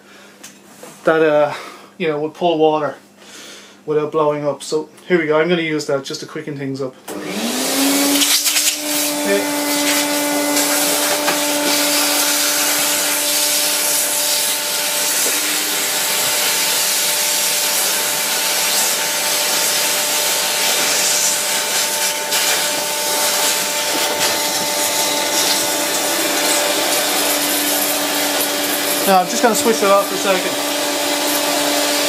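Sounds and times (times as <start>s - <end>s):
vacuum cleaner motor whine: 7.1s - 32.0s
vacuum sucking water: 7.1s - 32.0s.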